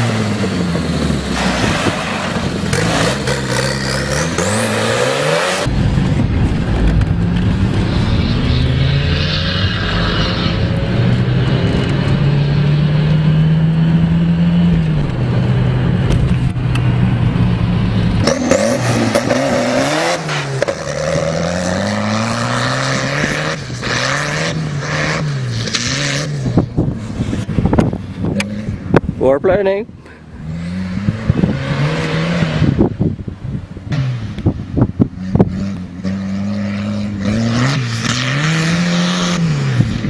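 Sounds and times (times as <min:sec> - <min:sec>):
tractor engine revving: 0:00.0 - 0:29.5.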